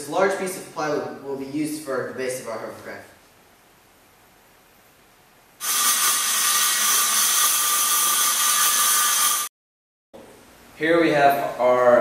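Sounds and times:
circular saw cutting plywood: 5.6s - 9.5s.

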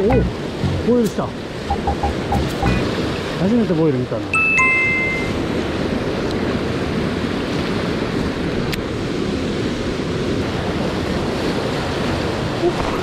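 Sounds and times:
flowing river water: 0.0s - 13.0s.

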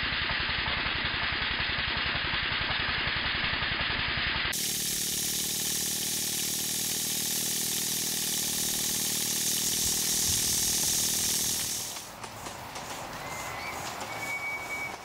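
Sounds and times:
model steam engine running fast: 0.0s - 15.0s
steam hissing: 4.6s - 15.0s.

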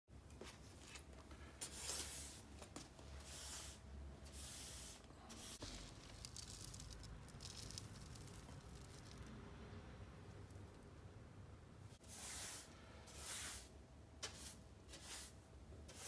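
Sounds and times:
brush sweeping litter on wood floor: 0.9s - 6.8s, 12.0s - 16.0s
plastic scoop sifting litter: 3.2s - 9.3s.

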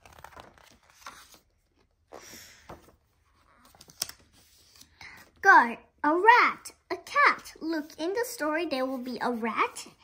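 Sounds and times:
book pages turning: 0.0s - 5.4s.

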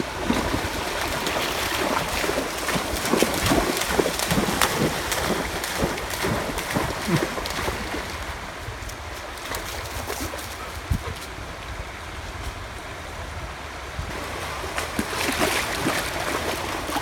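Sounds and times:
stream rushing: 0.0s - 17.0s
dog splashing through water: 0.1s - 8.4s, 9.3s - 10.8s, 14.1s - 17.0s.

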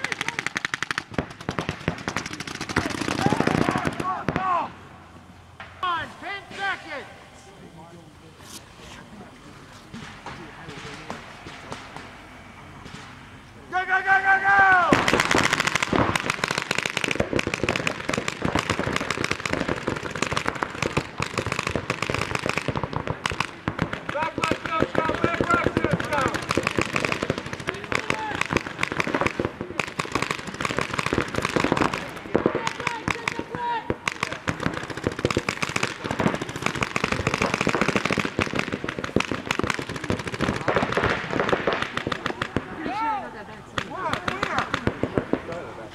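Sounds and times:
paintball markers firing: 0.0s - 4.5s, 14.9s - 42.7s, 43.8s - 45.7s.

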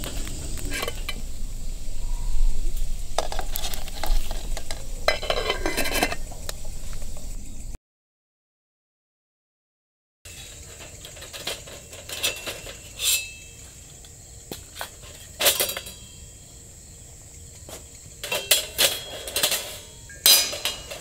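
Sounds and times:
metal clanking and clinking: 0.0s - 1.4s, 3.1s - 7.3s, 10.3s - 14.0s, 14.6s - 16.4s, 18.2s - 21.0s.

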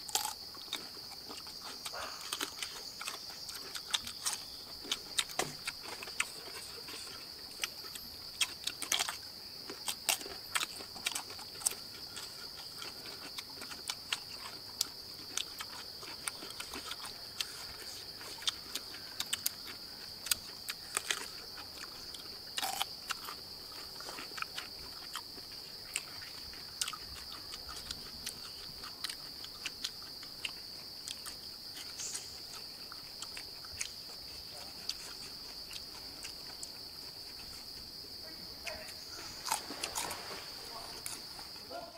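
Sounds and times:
insects droning: 0.0s - 41.9s.

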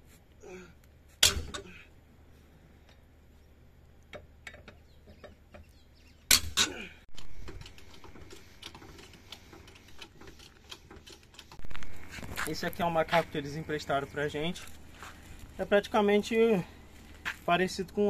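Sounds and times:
metallic clicks and clanks of tools: 4.1s - 5.7s, 6.3s - 11.8s.

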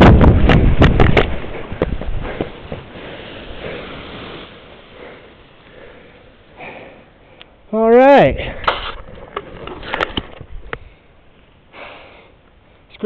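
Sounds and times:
wind rush on microphone: 0.0s - 4.6s
grass rustling: 0.0s - 11.9s
faint breathing: 2.2s - 7.6s, 9.8s - 12.9s.

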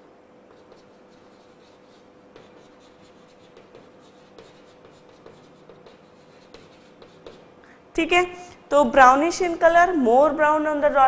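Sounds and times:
faint steady hum: 0.0s - 11.0s
chalk scratching on blackboard: 0.5s - 7.6s.

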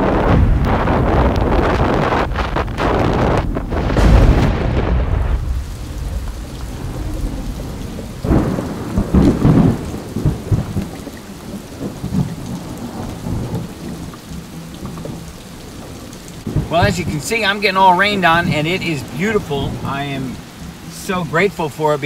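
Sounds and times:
wind on microphone: 0.0s - 17.2s
rolling thunder: 0.0s - 21.1s
rain: 0.0s - 22.0s.

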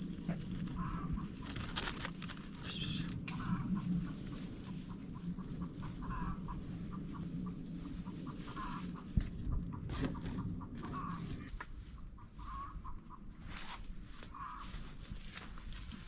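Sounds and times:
hens clucking: 0.6s - 1.6s, 3.2s - 13.3s, 14.2s - 14.8s.

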